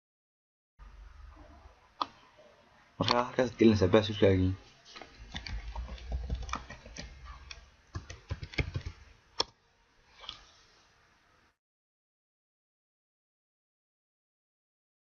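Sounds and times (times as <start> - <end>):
keyboard typing: 5.0 - 9.5.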